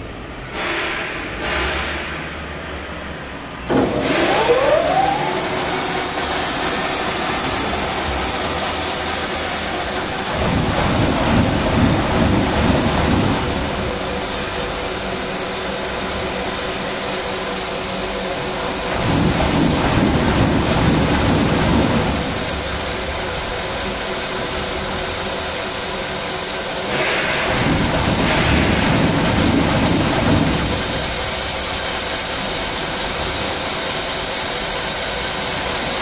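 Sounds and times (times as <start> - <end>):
machine motor whining: 3.6 - 11.2.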